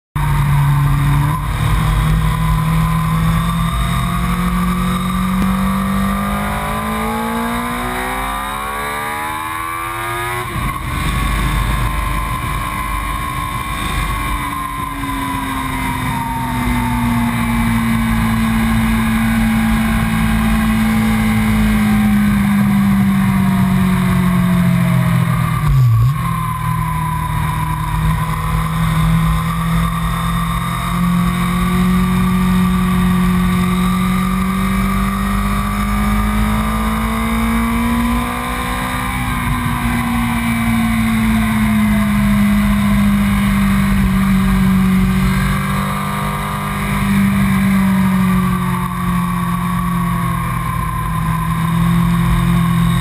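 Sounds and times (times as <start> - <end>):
low rush of wind: 0.2 - 53.0
motorcycle engine revving: 0.2 - 53.0.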